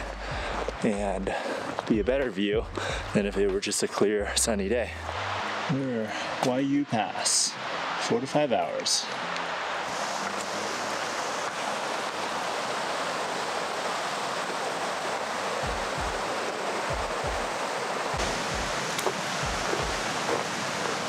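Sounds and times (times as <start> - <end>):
soft low thumps: 0.0 - 3.6, 15.6 - 16.2
steady rushing noise: 0.0 - 21.0.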